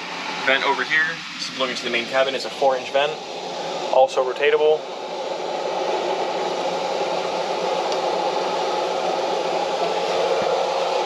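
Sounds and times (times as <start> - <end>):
air blowing from vent: 0.0 - 11.0.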